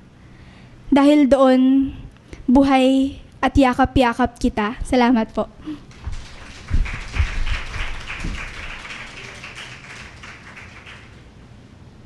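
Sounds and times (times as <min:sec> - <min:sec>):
audience applauding: 0:05.9 - 0:11.3
low thumps: 0:06.0 - 0:08.4.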